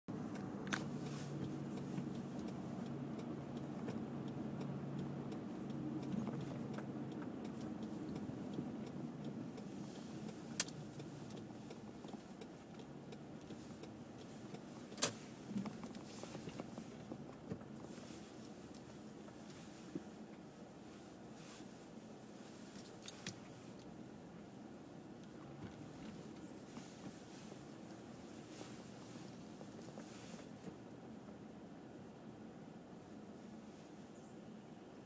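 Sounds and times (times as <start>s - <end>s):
car engine hum: 0.1s - 35.0s
sharp clicks: 0.3s - 16.7s.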